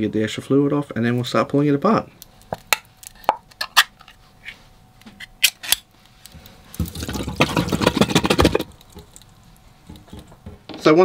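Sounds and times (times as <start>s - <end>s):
liquid splashing into steel sink: 6.8s - 9.2s.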